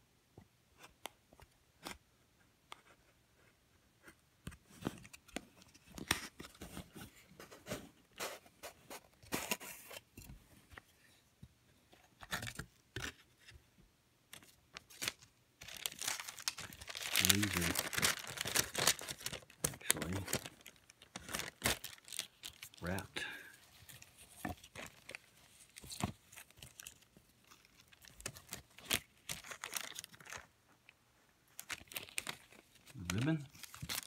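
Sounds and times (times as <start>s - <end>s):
paper crinkling: 14.4s - 30.5s, 31.5s - 34.0s.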